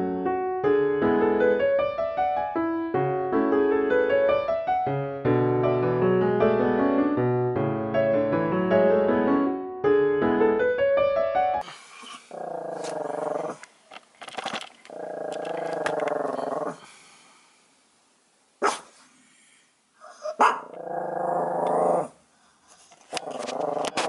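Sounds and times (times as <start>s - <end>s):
small dog growling: 12.1s - 13.6s, 14.9s - 16.8s, 20.1s - 22.2s, 23.1s - 24.0s.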